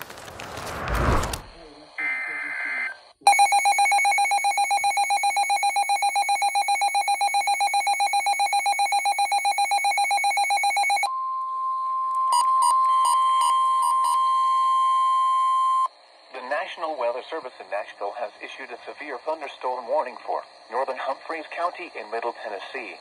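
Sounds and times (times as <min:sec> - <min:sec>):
rapidly pulsing electronic beep: 0:01.8 - 0:11.1.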